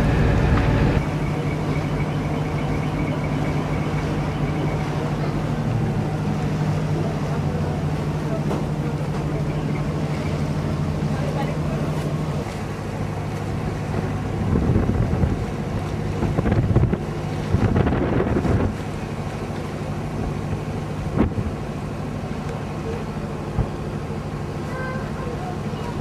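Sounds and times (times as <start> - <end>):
ferry engine humming: 0.0 - 26.0
wind gusting on microphone: 14.3 - 18.9.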